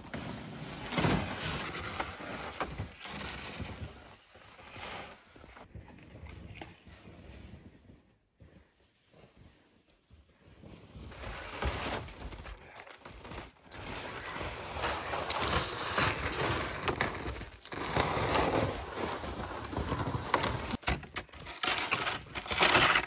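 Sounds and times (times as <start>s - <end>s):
plastic sled dragged over snow: 0.0s - 7.9s, 10.6s - 23.0s.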